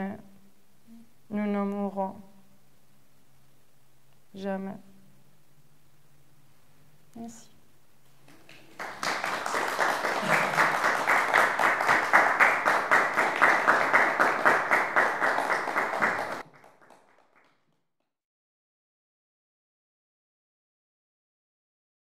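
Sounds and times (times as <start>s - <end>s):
audience applauding: 8.3s - 17.6s.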